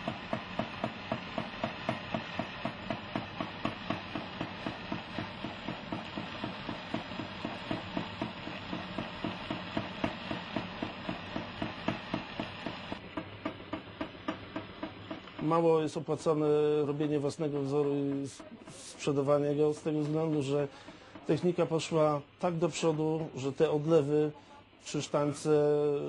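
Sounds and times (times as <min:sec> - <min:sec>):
torch flame hissing: 0:00.0 - 0:22.8
regular puffing: 0:19.8 - 0:21.4.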